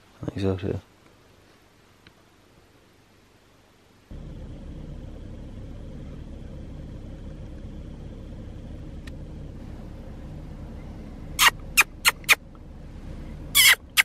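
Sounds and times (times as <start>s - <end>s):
vehicle engine idling: 4.1s - 14.0s
sharp high chirps: 11.4s - 12.4s, 13.5s - 14.0s.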